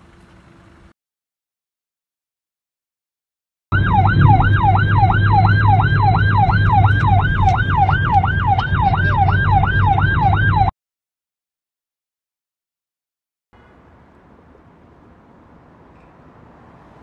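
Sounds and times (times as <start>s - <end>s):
police siren yelping: 3.7s - 10.7s.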